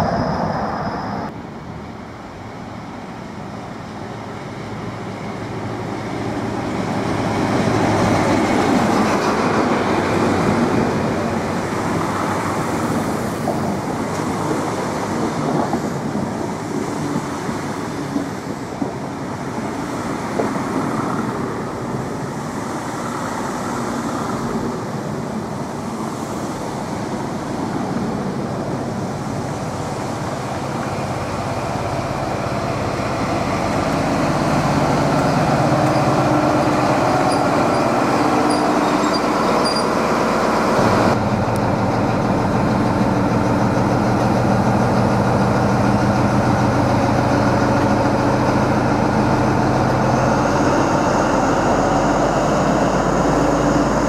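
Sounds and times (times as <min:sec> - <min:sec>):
diesel train engine: 0:00.0 - 0:54.0.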